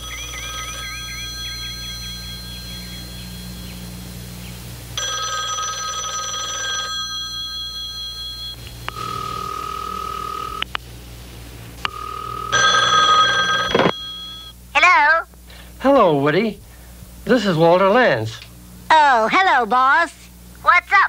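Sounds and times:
telephone ringing: 0:00.0 - 0:04.1, 0:05.0 - 0:10.7, 0:11.9 - 0:14.6
short low steady tones: 0:00.0 - 0:04.8.

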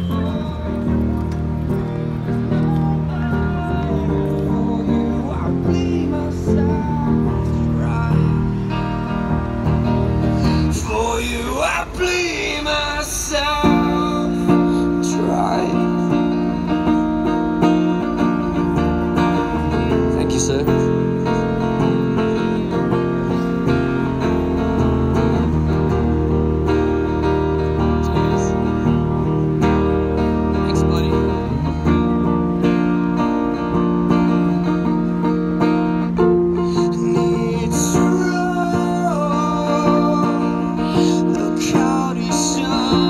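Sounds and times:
person singing: 0:00.0 - 0:01.5, 0:02.5 - 0:08.6, 0:36.4 - 0:43.0
acoustic guitar strumming: 0:00.0 - 0:43.0.

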